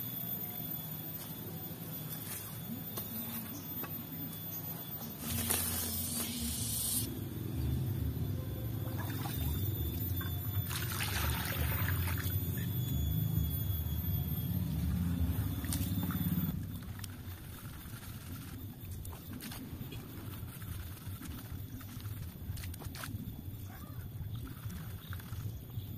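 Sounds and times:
plants rustling and tearing: 5.2s - 6.5s
low steady rumble: 6.4s - 25.9s.

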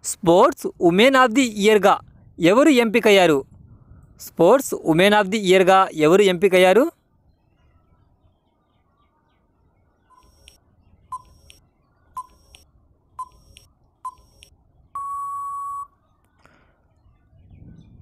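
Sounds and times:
long electronic beep: 10.1s - 11.6s, 13.2s - 16.0s
short electronic beeps: 10.1s - 11.6s, 12.2s - 12.6s, 13.2s - 16.0s.

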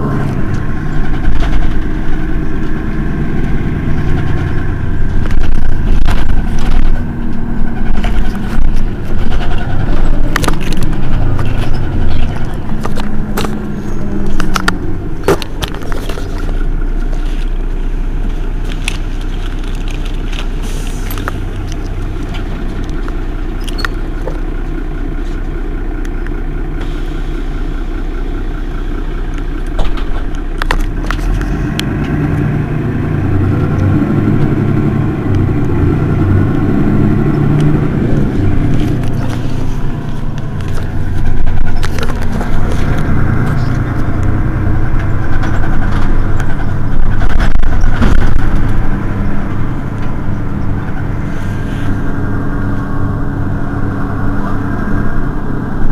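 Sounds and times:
bus diesel engine idling: 0.0s - 55.9s
sharp clicks and knocks: 0.4s - 16.7s.

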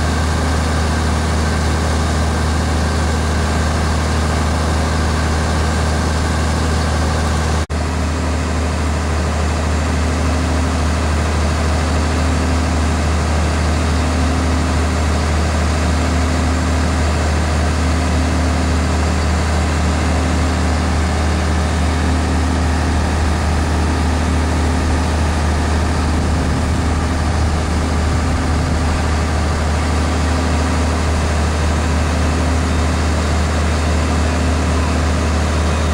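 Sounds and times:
fire truck engine running: 0.0s - 35.9s
rush of water stream: 9.8s - 35.9s.

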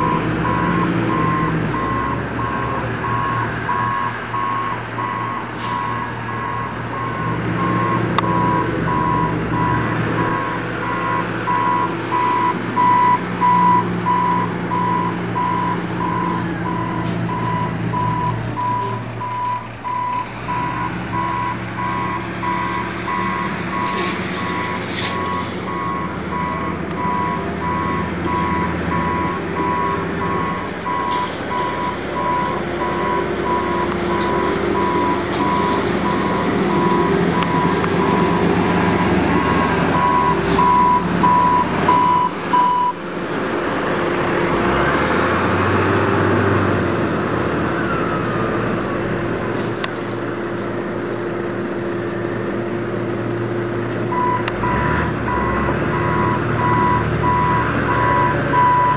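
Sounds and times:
reversing alarm beeping: 0.0s - 43.0s, 54.1s - 58.9s
vehicle engine running: 0.0s - 58.9s.

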